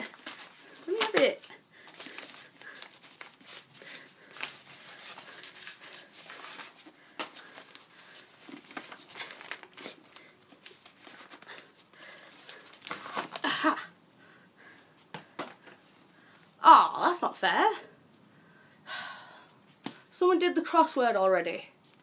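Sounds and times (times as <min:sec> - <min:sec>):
paper and cardboard crinkling: 0:00.0 - 0:13.4.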